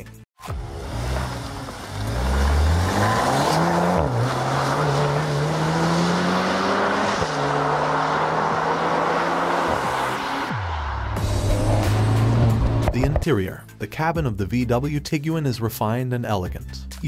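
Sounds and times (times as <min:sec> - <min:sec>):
car engine accelerating: 0:00.4 - 0:13.2.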